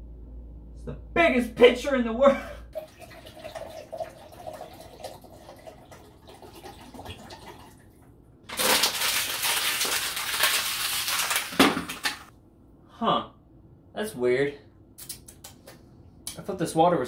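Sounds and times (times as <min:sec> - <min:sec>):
water splashing into plastic pitcher: 0:02.8 - 0:07.8, 0:08.5 - 0:12.3
water trickling into glass cup: 0:02.8 - 0:07.8.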